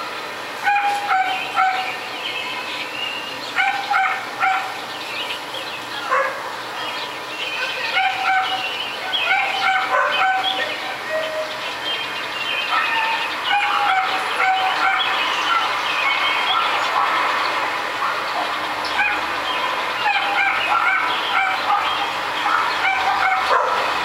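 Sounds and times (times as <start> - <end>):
dogs barking: 0.6 - 2.0, 3.5 - 4.9, 6.0 - 6.6, 7.6 - 11.6, 12.6 - 24.0.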